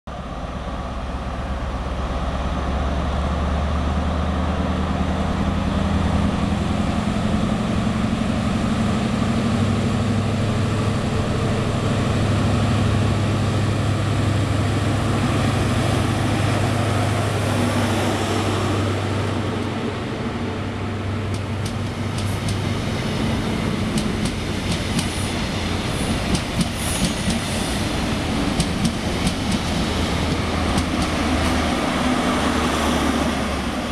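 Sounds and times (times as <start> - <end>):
diesel train engine accelerating: 0.1 - 33.9
train wheels clicking over rail joints: 21.3 - 22.8, 23.8 - 31.8.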